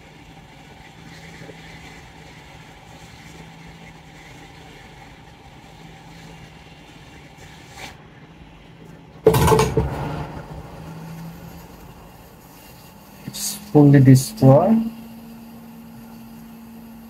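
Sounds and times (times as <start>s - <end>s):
hot air station hum and hiss: 0.0s - 17.0s
sudden loud noise: 9.3s - 12.6s.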